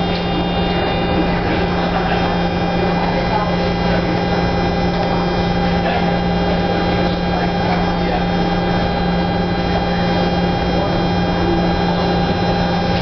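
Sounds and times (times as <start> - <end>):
subway car equipment hum: 0.0 - 13.0.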